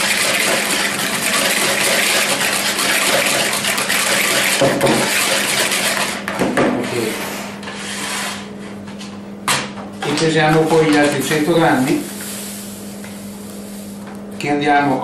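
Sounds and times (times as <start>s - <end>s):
hand whisk swishing in bowl: 0.0s - 6.2s.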